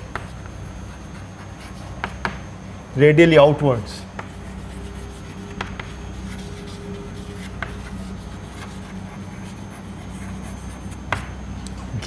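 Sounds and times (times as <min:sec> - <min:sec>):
chalk tapping board: 0:00.0 - 0:00.6, 0:01.2 - 0:02.4, 0:04.1 - 0:11.4
chalk scratching on blackboard: 0:00.0 - 0:02.4, 0:04.2 - 0:11.4
low hum: 0:00.0 - 0:12.0.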